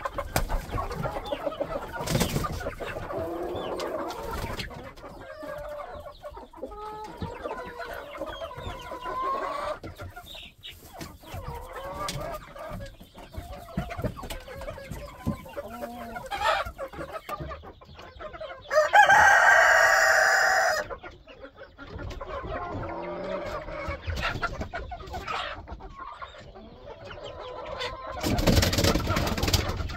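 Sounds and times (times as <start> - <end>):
chickens clucking: 0.0 - 29.9
rooster crowing: 18.7 - 20.8.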